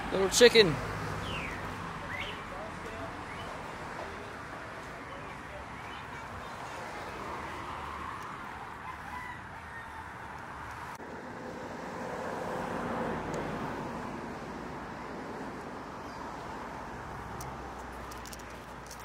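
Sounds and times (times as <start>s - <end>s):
outdoor background noise: 0.0s - 19.0s
rooster crowing: 8.7s - 10.3s.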